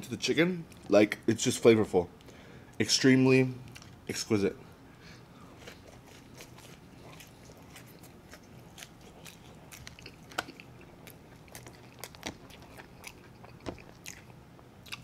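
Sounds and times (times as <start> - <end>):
chewing with wet mouth clicks: 5.6 - 15.0.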